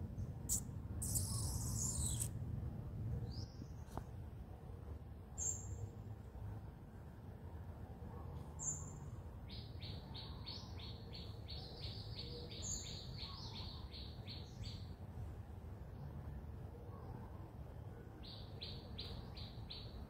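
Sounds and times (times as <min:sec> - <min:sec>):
low steady background rumble: 0:00.0 - 0:20.0
small birds chirping: 0:00.2 - 0:02.3
higher single chirp: 0:00.5 - 0:02.3.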